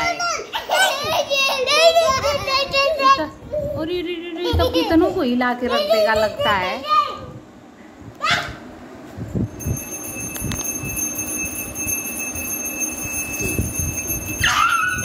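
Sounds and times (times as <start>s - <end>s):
hand bell ringing: 9.4s - 15.0s.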